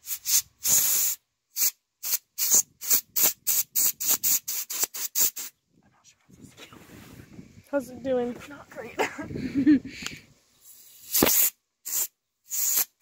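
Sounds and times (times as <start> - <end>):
compressed air hissing blasts: 0.0 - 5.6, 9.9 - 13.0.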